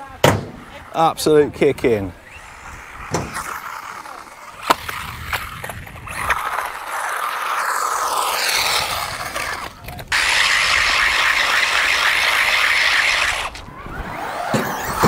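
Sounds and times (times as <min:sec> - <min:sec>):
electric motor whining: 0:02.2 - 0:15.0.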